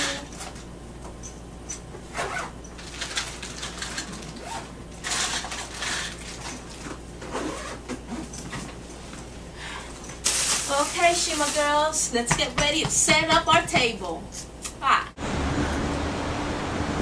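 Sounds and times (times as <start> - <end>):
plastic bags rustling: 2.8 - 8.9, 9.6 - 12.1.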